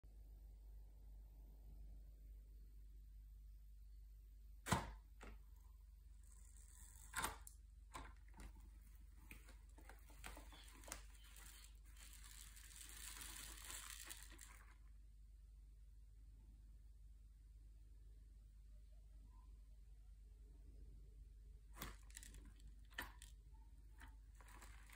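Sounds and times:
grains scooped and trickling: 0:10.5 - 0:14.8, 0:24.3 - 0:24.9.

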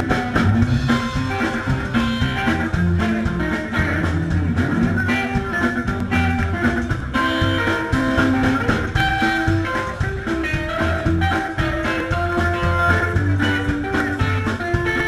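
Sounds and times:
guitar picking: 0:00.0 - 0:15.0
rockabilly band playing: 0:00.0 - 0:15.0
upright double bass walking: 0:00.0 - 0:15.0.

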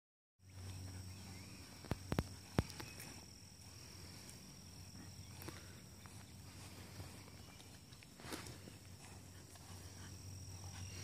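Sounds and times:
high-pitched insect trill: 0:00.4 - 0:11.0
low hum: 0:00.4 - 0:11.0.

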